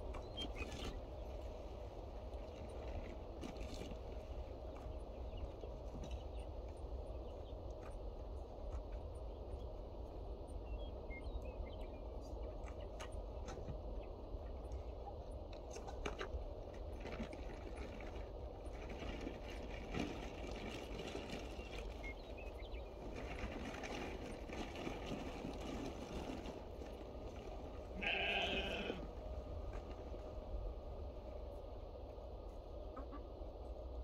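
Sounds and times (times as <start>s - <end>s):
steady low rumble: 0.0s - 34.0s
livestock bleating: 27.9s - 29.1s.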